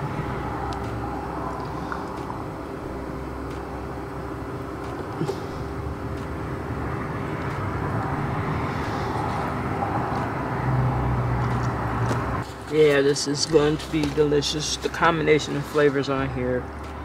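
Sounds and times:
background hum and rumble: 0.0s - 17.0s
faint constant tone: 0.0s - 17.0s.

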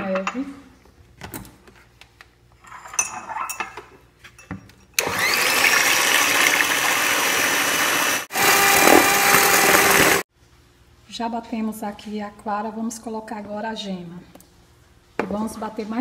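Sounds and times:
electric mixer whipping: 5.0s - 10.3s.

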